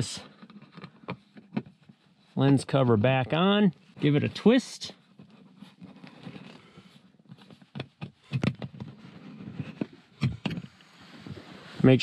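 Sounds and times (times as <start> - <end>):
plastic clicks and scrapes: 0.2 - 2.6, 5.1 - 11.6.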